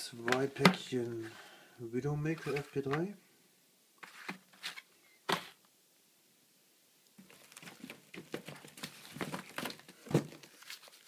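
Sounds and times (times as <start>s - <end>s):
plastic wrap crinkling: 7.2s - 11.0s.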